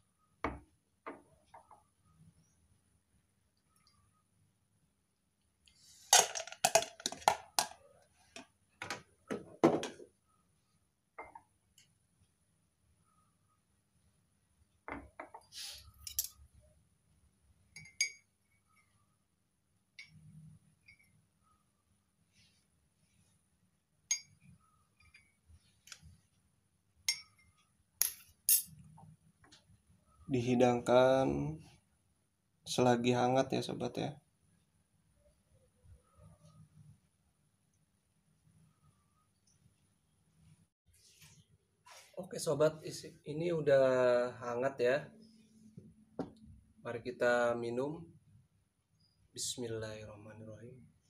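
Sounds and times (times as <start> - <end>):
kitchenware clinking: 17.7 - 18.3, 27.1 - 28.8.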